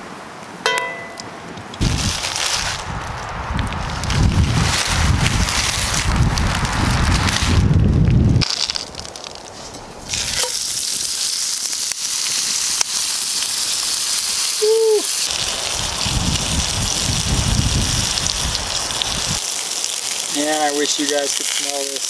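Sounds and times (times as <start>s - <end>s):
steak sizzling in a skillet: 10.0s - 22.0s.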